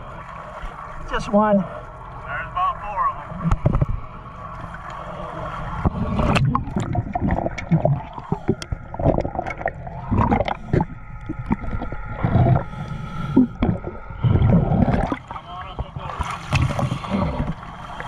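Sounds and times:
water sloshing and gurgling: 0.0 - 18.0.

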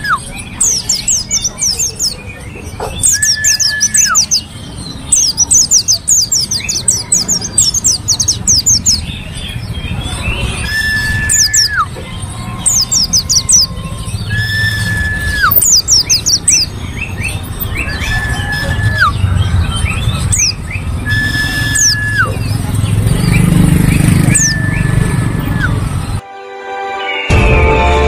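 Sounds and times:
bird singing high chirps: 0.0 - 26.2
bird whistle dropping in pitch: 21.0 - 22.4.

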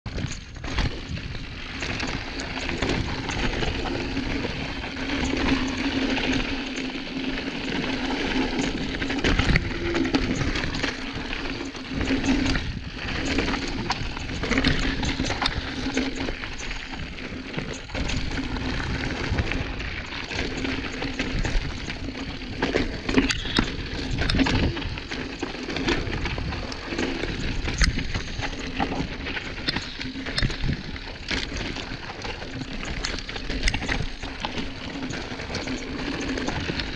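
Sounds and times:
bike rattling and knocking on rocks: 0.1 - 36.9
bike tyres grinding over loose stones: 0.1 - 36.9.

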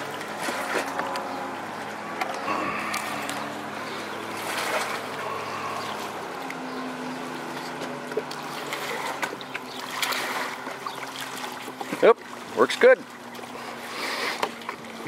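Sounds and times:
steady low hum: 0.0 - 15.0
water lapping around boat hull: 0.0 - 15.0.

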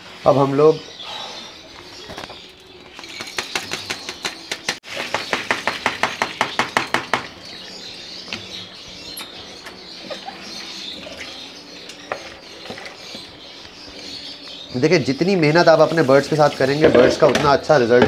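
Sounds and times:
parrots chirping: 6.2 - 17.2.

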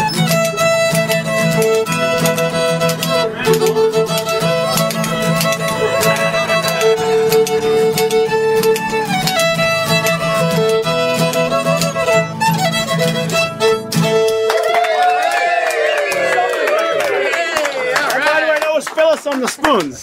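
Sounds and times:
strummed acoustic guitars: 0.0 - 14.5
lead instrument melody: 0.0 - 14.8.

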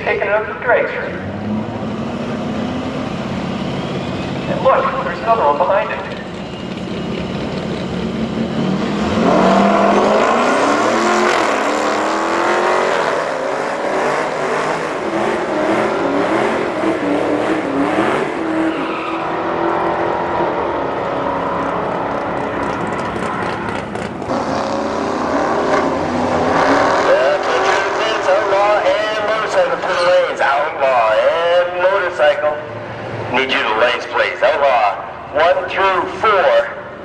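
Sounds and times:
engines idling: 0.0 - 18.6, 20.0 - 24.4, 25.8 - 37.0
car engines accelerating hard: 0.0 - 37.0
engine revving up: 6.1 - 30.0.

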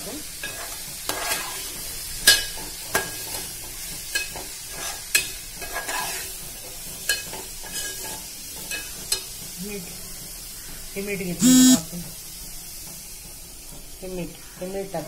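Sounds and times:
hot oil sizzling: 0.0 - 15.0
metal spoon scraping steel pan: 0.4 - 1.6, 4.7 - 6.3.

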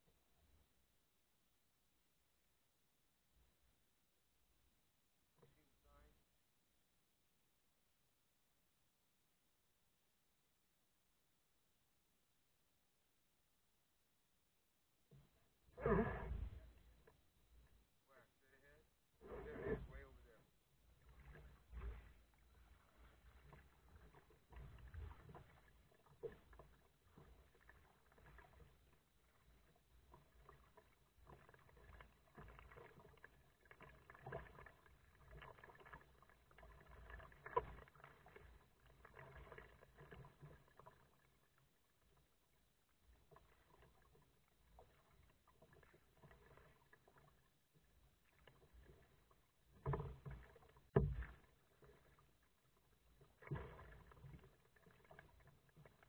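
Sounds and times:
paddle strokes splashing water: 15.1 - 18.0, 19.2 - 56.0.

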